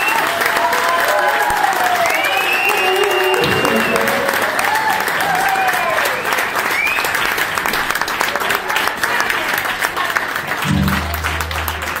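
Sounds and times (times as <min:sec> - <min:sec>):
audience applauding: 0:00.0 - 0:12.0
person whooping: 0:02.0 - 0:06.2.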